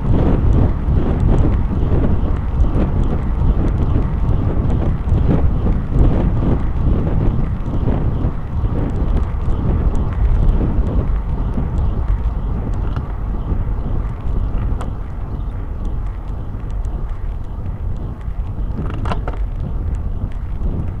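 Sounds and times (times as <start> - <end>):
wind rumble on microphone: 0.0 - 21.0
faint clicks: 8.8 - 20.6.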